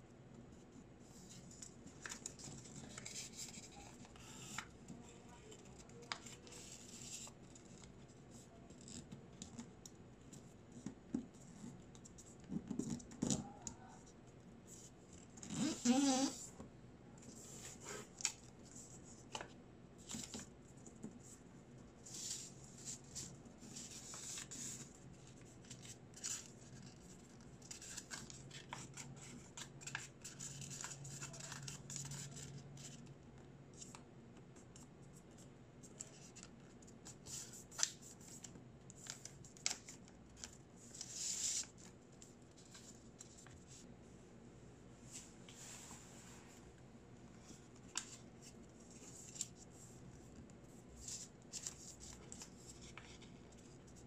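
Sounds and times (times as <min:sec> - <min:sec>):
paper folding and rustling: 0:01.1 - 0:09.7, 0:22.0 - 0:33.1, 0:34.7 - 0:43.8, 0:47.4 - 0:54.0.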